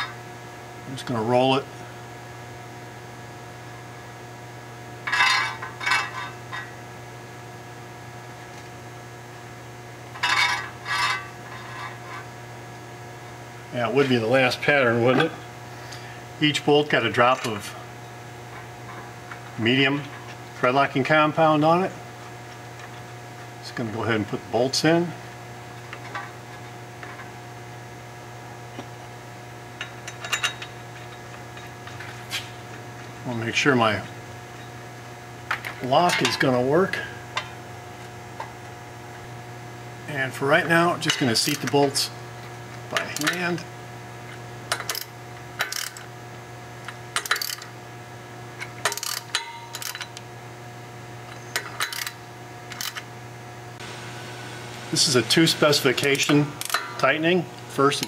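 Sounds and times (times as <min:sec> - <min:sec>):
steady low hum: 0:00.0 - 0:58.0
ratcheting wrench clicking: 0:44.7 - 0:46.1, 0:47.2 - 0:47.7, 0:48.8 - 0:50.2, 0:51.6 - 0:53.0
metallic clicks of bolts: 0:47.2 - 0:47.7.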